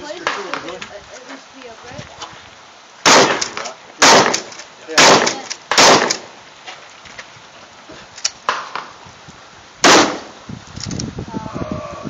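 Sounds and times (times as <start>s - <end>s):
crackling rustle: 0.0s - 11.3s
rifle gunshots: 3.0s - 6.3s, 9.8s - 10.4s.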